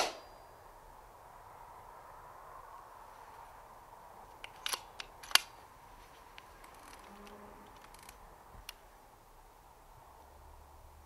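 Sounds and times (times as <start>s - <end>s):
air rifle shot snap: 0.0s - 0.3s
air rifle action clicks: 4.3s - 5.6s, 6.4s - 8.8s.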